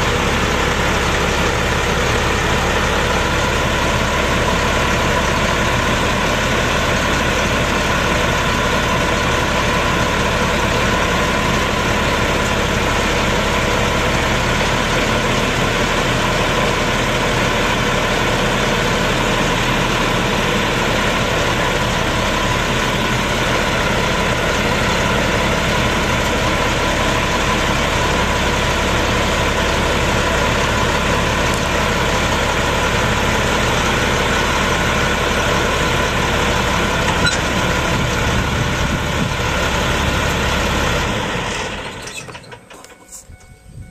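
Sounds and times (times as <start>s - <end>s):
dump bed lowering: 0.0s - 43.8s
diesel truck engine idling: 0.0s - 43.9s.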